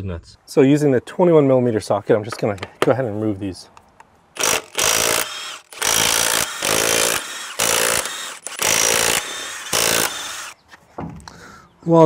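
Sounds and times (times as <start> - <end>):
impact wrench spinning lug nuts: 4.4 - 10.6.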